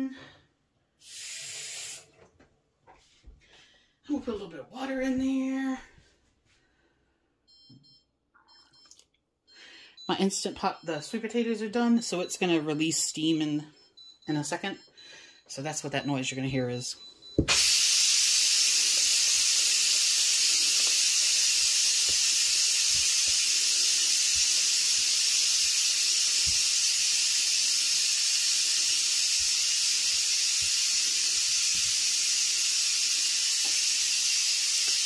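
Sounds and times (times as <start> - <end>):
pressure cooker steam hiss: 1.0 - 2.1, 17.5 - 35.0.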